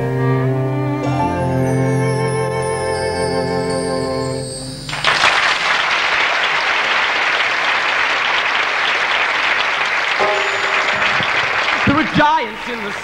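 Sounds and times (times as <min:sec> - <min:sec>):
musical accompaniment: 0:00.0 - 0:05.5, 0:10.2 - 0:12.1
audience applauding: 0:04.9 - 0:13.0.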